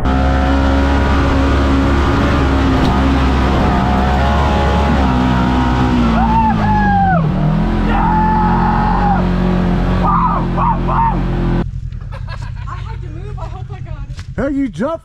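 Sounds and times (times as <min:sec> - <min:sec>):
off-road vehicle engine under load: 0:00.0 - 0:15.0
people shouting: 0:00.1 - 0:11.6.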